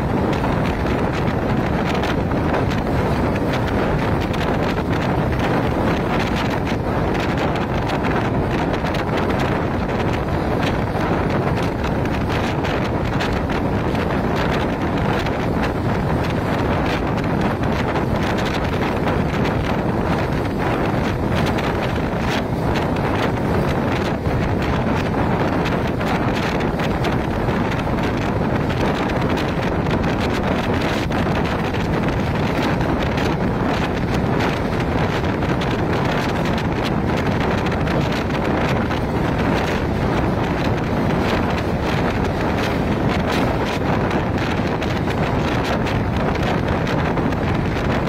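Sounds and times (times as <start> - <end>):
train rumbling on track: 0.0 - 48.0
wind buffeting microphone: 0.0 - 48.0.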